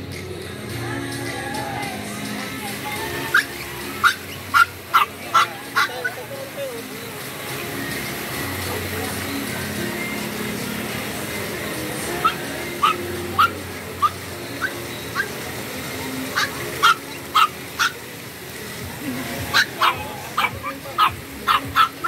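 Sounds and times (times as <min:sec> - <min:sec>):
fountain water hissing: 0:00.0 - 0:22.0
puppy yapping: 0:03.3 - 0:06.2, 0:12.2 - 0:15.3, 0:16.4 - 0:18.0, 0:19.5 - 0:22.0.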